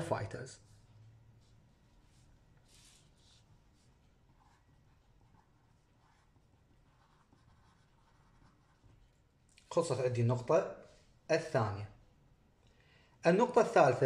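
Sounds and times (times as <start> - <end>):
pencil scratching on paper: 0.8 - 9.2.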